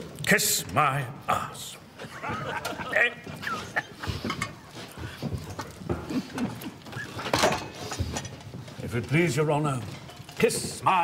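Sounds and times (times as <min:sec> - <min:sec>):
men laughing together: 0:01.9 - 0:04.8.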